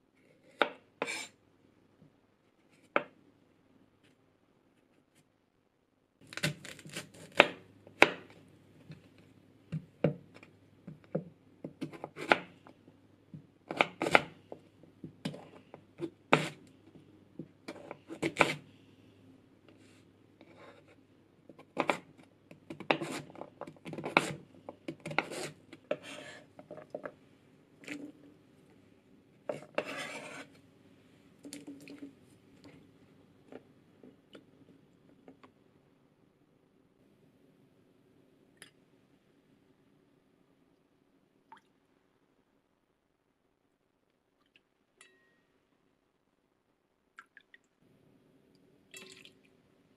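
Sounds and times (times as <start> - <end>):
knife cutting on wooden board: 0.6 - 1.3, 17.7 - 18.6, 25.0 - 26.5, 29.5 - 30.5.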